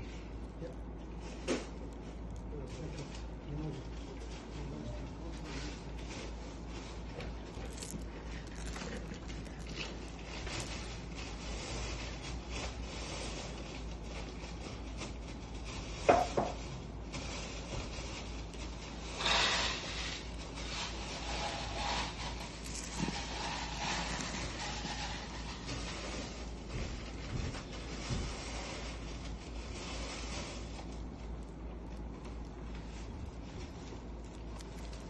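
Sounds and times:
pearls scraping across tabletop: 6.2 - 13.5, 19.1 - 26.8.

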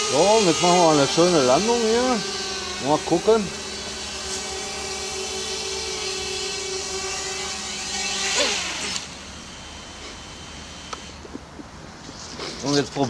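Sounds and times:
quadcopter motors buzzing: 0.0 - 13.0.

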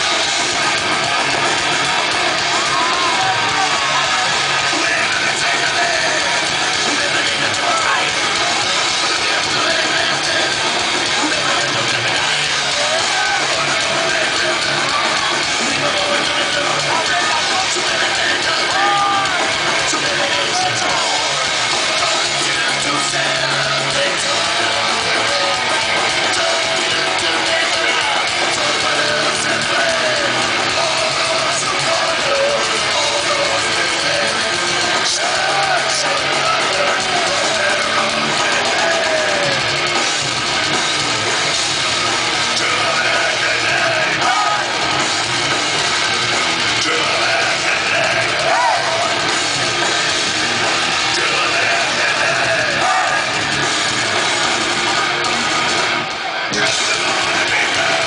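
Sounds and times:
distorted electric guitars: 0.0 - 58.0
drum kit: 0.0 - 58.0
person singing: 1.3 - 39.8, 42.4 - 45.0, 46.7 - 54.3, 56.5 - 58.0.

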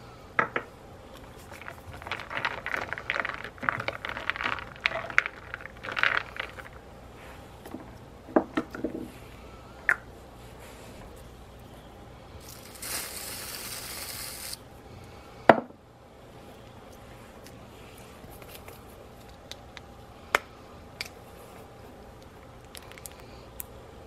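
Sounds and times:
aerosol whipped cream can hissing: 12.4 - 14.6.

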